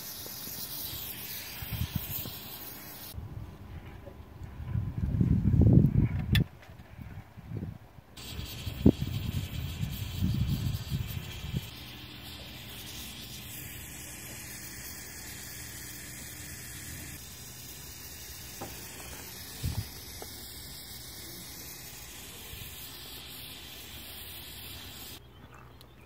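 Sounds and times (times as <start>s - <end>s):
torch flame hissing: 0.0s - 3.2s, 8.2s - 25.2s.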